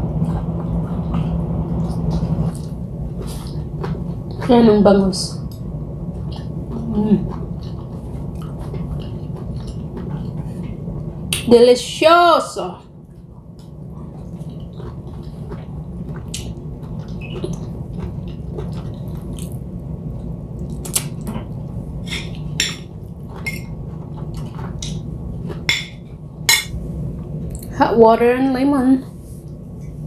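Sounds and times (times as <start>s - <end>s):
steady low hum: 0.0s - 30.0s
person chewing: 6.2s - 11.4s, 13.0s - 25.8s.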